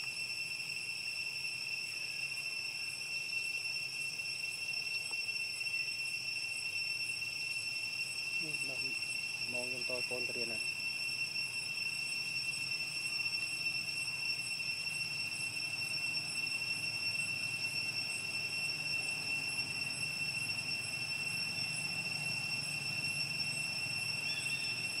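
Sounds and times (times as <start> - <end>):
insects droning: 0.0 - 25.0.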